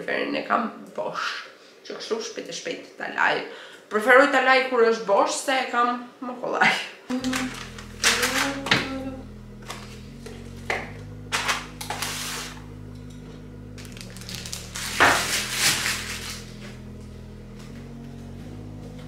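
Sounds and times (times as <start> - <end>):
steady low hum: 7.1 - 19.0.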